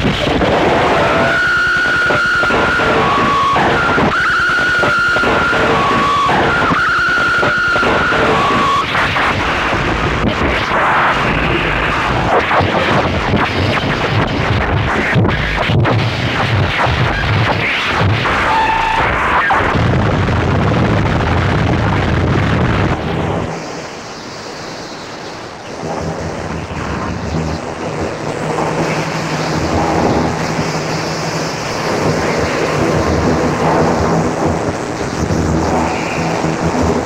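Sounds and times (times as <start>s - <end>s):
harsh distorted noise music: 0.0s - 24.3s, 25.1s - 37.0s
low buzzing hum: 0.0s - 37.0s.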